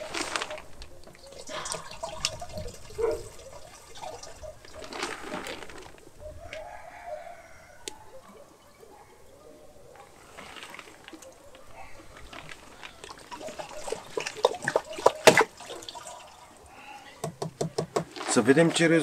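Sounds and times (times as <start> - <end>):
liquid trickling and splashing: 0.0 - 6.1, 10.0 - 17.4.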